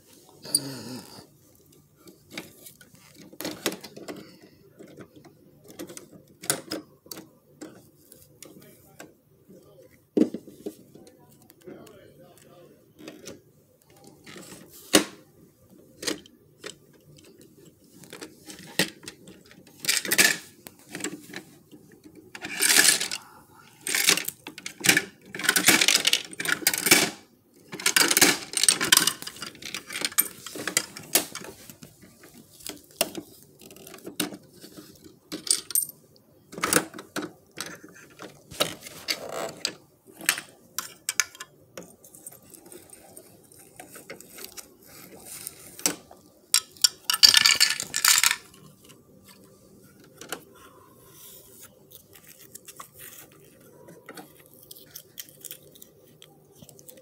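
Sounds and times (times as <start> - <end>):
plastic toy bins clattering: 2.0 - 8.6, 15.9 - 49.4.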